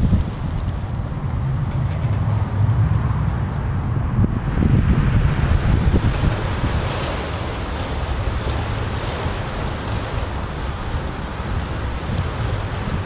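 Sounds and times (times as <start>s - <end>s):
wind through pine tree: 0.0s - 1.7s
wind buffeting microphone: 0.0s - 13.0s.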